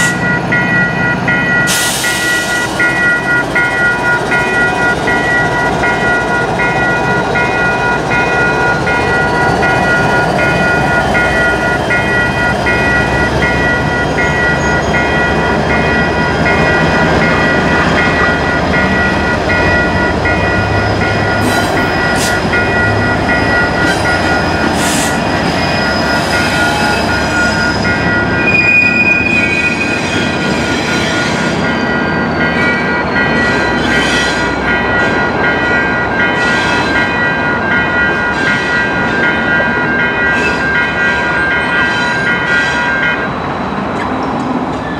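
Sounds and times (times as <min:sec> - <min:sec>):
crossing warning bell ringing: 0:00.0 - 0:44.9
freight train rumbling past: 0:00.0 - 0:44.9
high squeal: 0:24.8 - 0:34.3.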